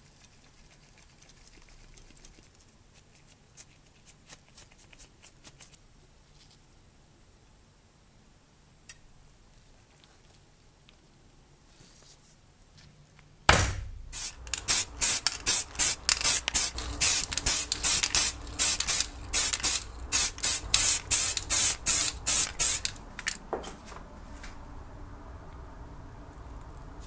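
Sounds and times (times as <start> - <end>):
spray paint hissing bursts: 14.1 - 23.1.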